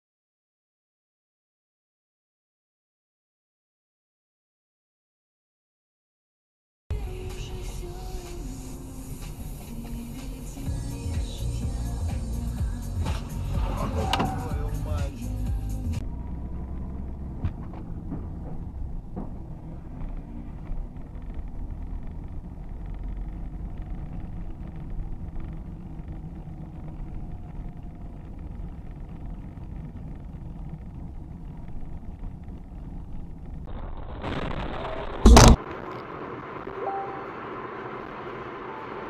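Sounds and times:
car engine and tyres rumbling: 6.9s - 39.0s
loud short bang: 35.2s - 35.7s.

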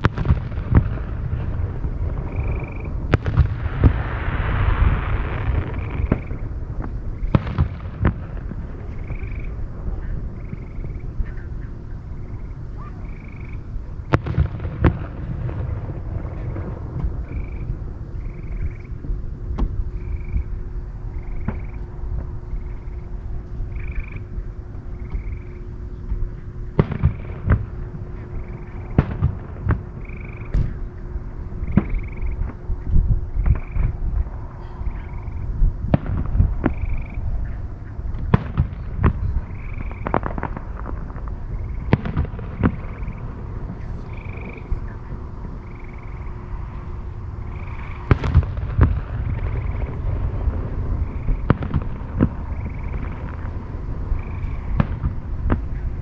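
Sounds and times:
distant fireworks booms: 0.0s - 56.0s
low outdoor rumble: 0.0s - 56.0s
frog trills: 10.4s - 13.7s, 20.0s - 20.5s, 23.7s - 24.3s, 25.0s - 25.6s, 30.0s - 30.6s, 31.6s - 32.4s, 36.7s - 38.0s, 39.6s - 40.1s, 44.0s - 46.4s.

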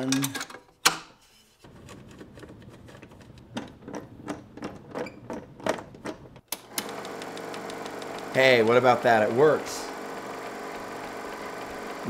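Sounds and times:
projector motor humming: 6.6s - 12.0s.

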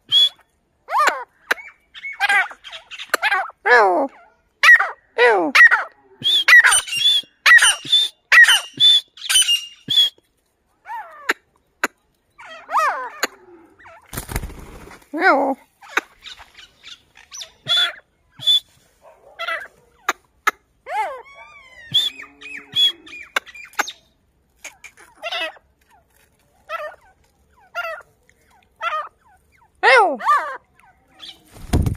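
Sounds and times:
bird calling harshly: 5.6s - 10.2s, 15.7s - 18.7s, 19.4s - 25.6s.

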